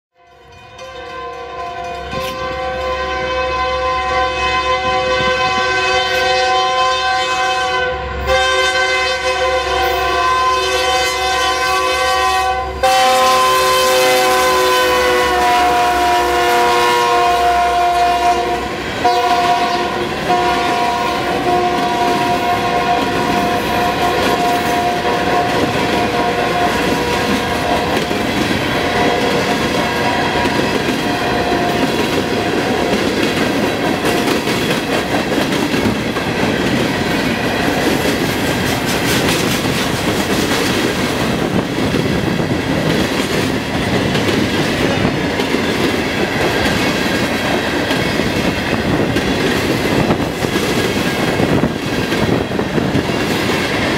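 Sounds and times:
locomotive air horn: 0.2s - 33.1s
train wheels clacking on rails: 14.0s - 53.9s.

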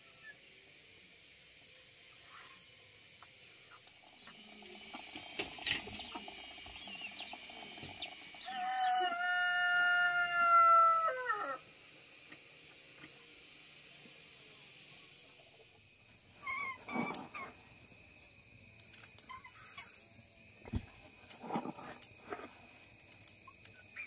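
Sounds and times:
chicken chirps and clucking: 5.4s - 11.6s, 16.4s - 17.6s, 19.2s - 19.8s
rooster crowing: 8.4s - 11.7s.

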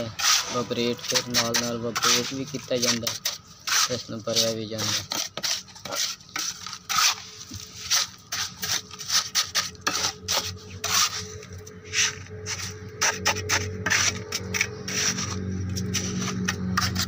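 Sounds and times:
trowel scraping wet concrete: 0.0s - 17.0s
low hum: 7.2s - 17.0s.

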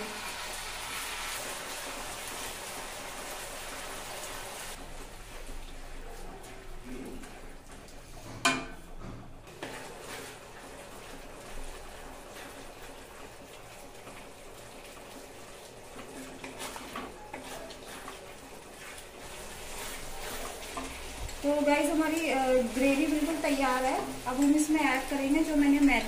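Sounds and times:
spatula stirring gravy in pan: 9.5s - 26.0s.

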